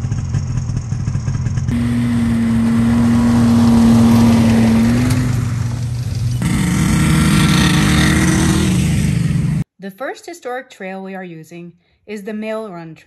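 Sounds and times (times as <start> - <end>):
snowmobile driving past: 1.7 - 9.6
snowmobile engines droning: 1.7 - 9.6.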